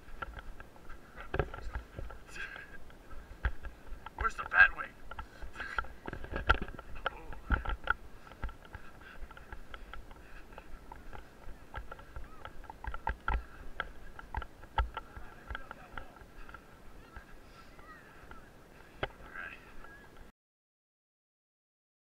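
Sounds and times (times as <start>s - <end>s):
camera jostling thumps: 0.0s - 17.3s
footsteps on dirt: 0.0s - 20.3s
faint voices: 0.1s - 20.3s.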